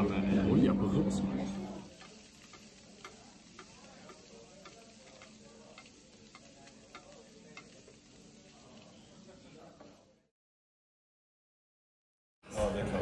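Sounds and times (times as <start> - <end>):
food sizzling in butter: 1.6 - 10.3
spoon clicking against pan: 1.9 - 8.5.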